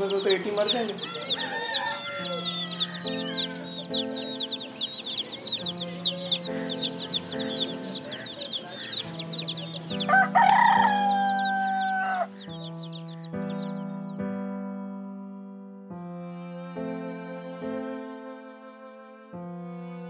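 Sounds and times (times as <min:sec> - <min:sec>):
chicks peeping: 0:00.0 - 0:14.2
soft background music: 0:00.0 - 0:20.0.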